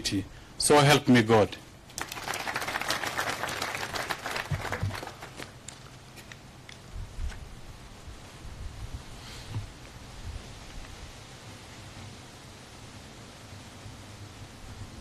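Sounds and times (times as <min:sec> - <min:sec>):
audience applauding: 0:02.0 - 0:05.6.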